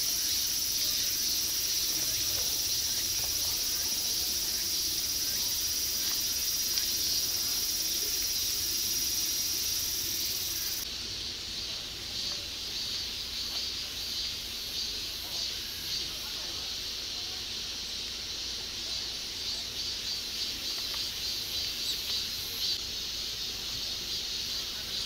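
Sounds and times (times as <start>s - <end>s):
high-pitched insect buzz: 0.0s - 10.9s
pulsing insect call: 0.0s - 25.0s.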